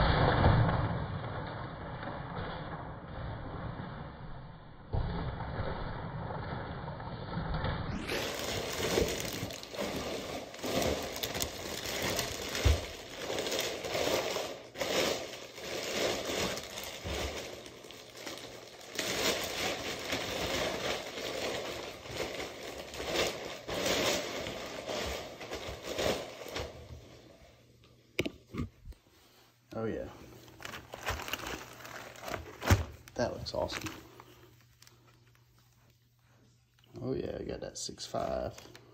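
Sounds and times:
cardboard tearing and scraping: 8.0s - 26.7s, 30.6s - 33.8s
plastic bag crinkling: 8.0s - 27.1s, 29.7s - 36.4s.

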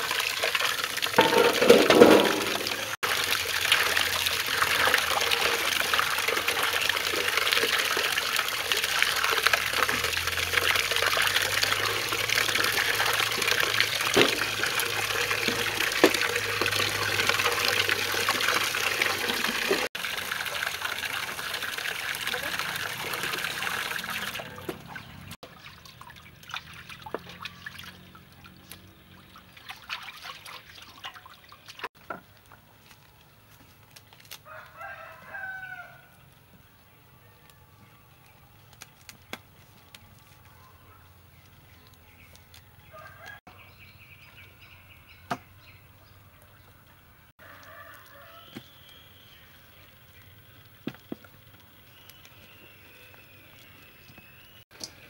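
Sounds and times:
water pouring into metal basin: 0.0s - 31.9s
water dripping: 0.0s - 32.5s, 47.5s - 55.0s
chicken wings splashing: 0.1s - 31.9s
hands sloshing water: 29.2s - 31.9s.

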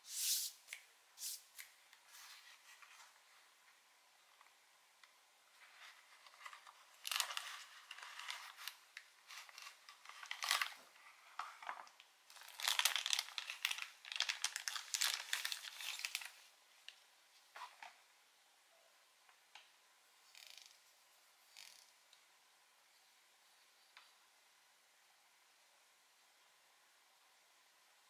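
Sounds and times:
plastic bag crinkling: 6.2s - 16.5s.

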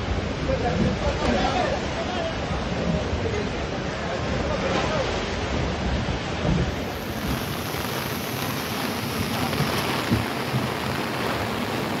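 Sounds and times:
heavy rain: 0.0s - 12.0s
wind: 0.0s - 12.0s
waves splashing against bank: 4.4s - 12.0s.

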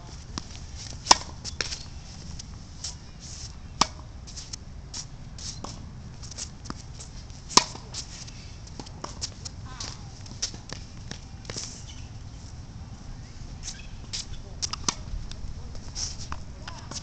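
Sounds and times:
low steady rumble: 0.0s - 17.0s
tennis ball struck by racket: 0.4s - 1.9s, 3.8s - 4.1s, 7.5s - 8.0s, 13.7s - 15.1s.

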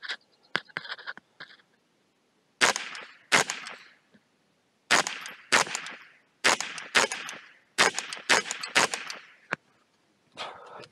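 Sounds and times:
rifle shots with echo: 2.6s - 3.9s, 4.9s - 9.4s.

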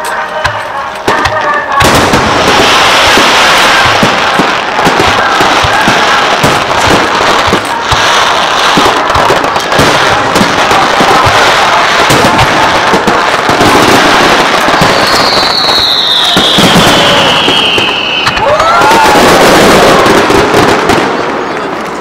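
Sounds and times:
fireworks crackling and popping: 0.0s - 22.0s
firework whistle gliding down: 14.7s - 20.2s.

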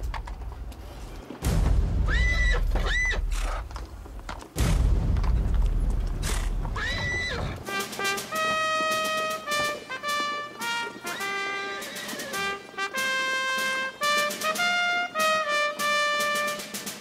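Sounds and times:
heavy explosions: 1.4s - 7.7s
trumpet playing: 6.8s - 17.0s.

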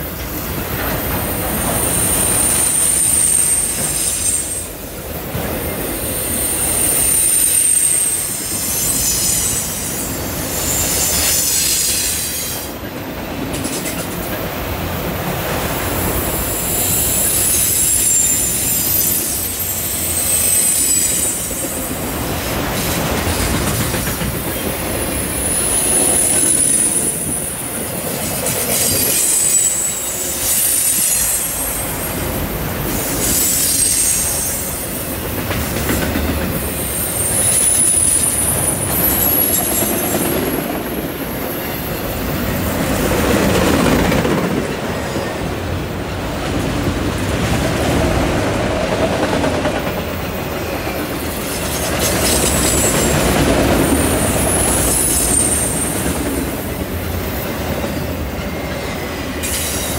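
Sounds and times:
train wheels rumbling on rail: 0.0s - 59.9s
high-pitched wheel squeal: 1.6s - 4.7s, 6.0s - 12.7s, 16.4s - 21.8s, 28.8s - 31.9s, 33.1s - 34.8s, 53.9s - 56.1s.

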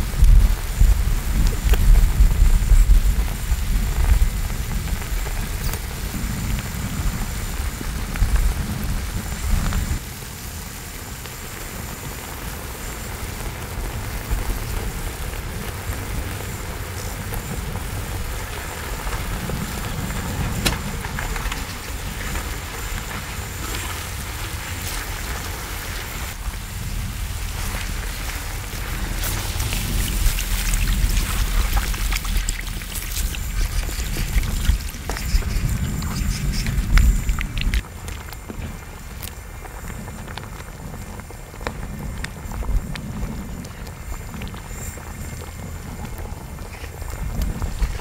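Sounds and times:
chicken sizzling on griddle: 0.0s - 37.5s
heavy low rumble: 12.6s - 48.0s.

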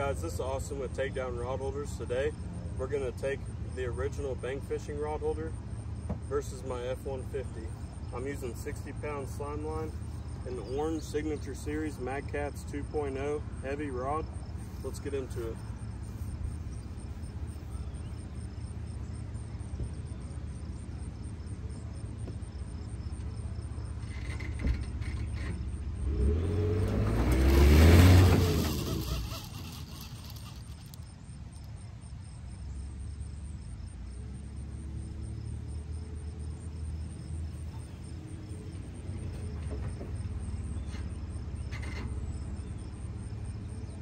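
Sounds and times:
pickup truck engine revving: 25.1s - 31.1s.

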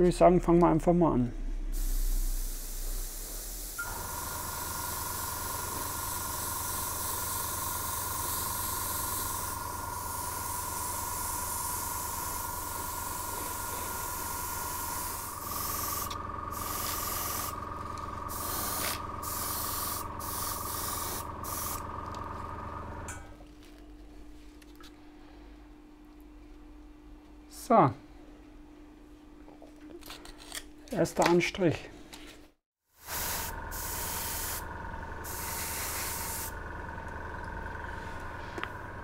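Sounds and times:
air compressor humming: 1.6s - 23.3s, 33.0s - 39.0s
airbrush spraying hiss: 1.7s - 17.6s, 18.3s - 21.8s, 33.0s - 34.6s, 35.2s - 36.6s.

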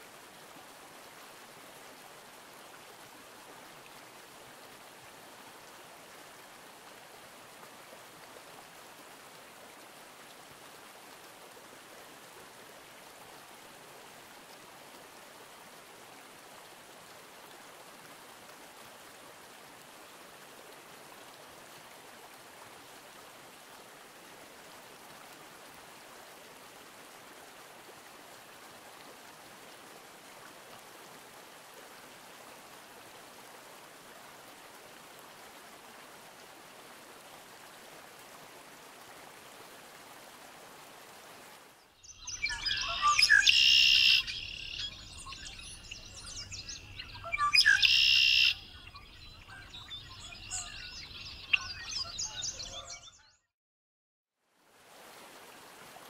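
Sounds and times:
stream water running: 0.0s - 53.0s, 54.5s - 56.0s
blackbird chirping calls: 42.0s - 53.2s
blackbird song: 42.0s - 53.5s.

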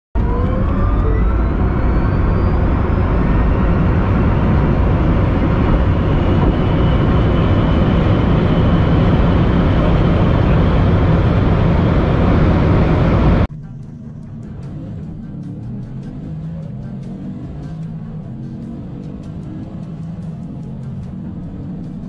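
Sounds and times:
wind and tyre roar: 0.2s - 22.0s.

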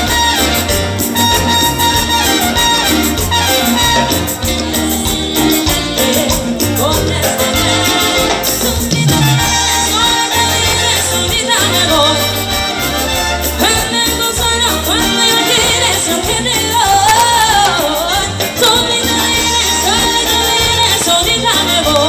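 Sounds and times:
live salsa band playing: 0.0s - 22.0s.

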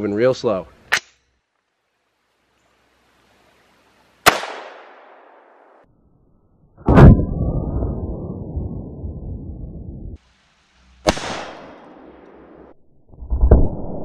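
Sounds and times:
rifle gunshots: 4.3s - 5.2s, 11.1s - 12.5s
low rumble: 6.8s - 10.2s, 12.7s - 14.0s.

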